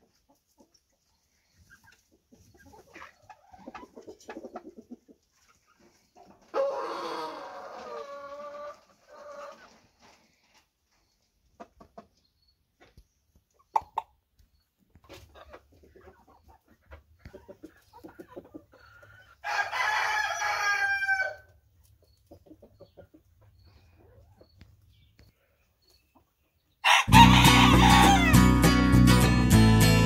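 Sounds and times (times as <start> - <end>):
chickens clucking: 0.0 - 28.4
rooster crowing: 6.6 - 8.2, 19.4 - 21.4, 26.8 - 28.4.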